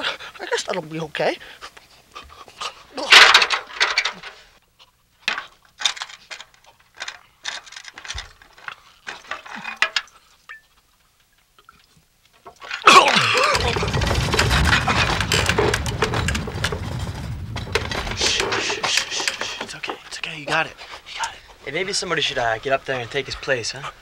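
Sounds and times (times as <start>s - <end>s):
glass jar clinking: 9.2s - 10.7s.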